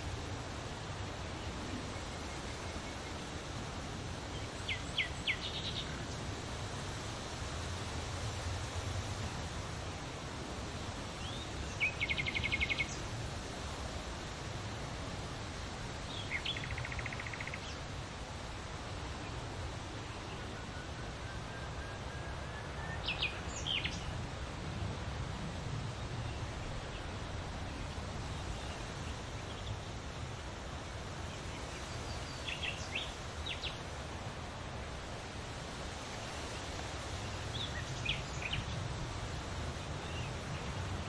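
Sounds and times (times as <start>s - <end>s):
leaves rustling in wind: 0.0s - 41.0s
songbirds calling: 1.0s - 6.9s, 11.0s - 14.4s, 15.5s - 18.2s, 19.1s - 24.3s, 25.9s - 34.0s, 35.9s - 41.0s.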